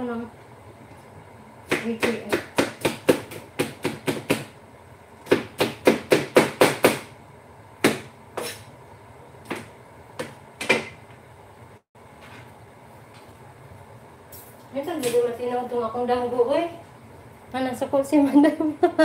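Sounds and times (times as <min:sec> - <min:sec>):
knife chopping on cutting board: 0:01.7 - 0:04.6, 0:05.2 - 0:07.1.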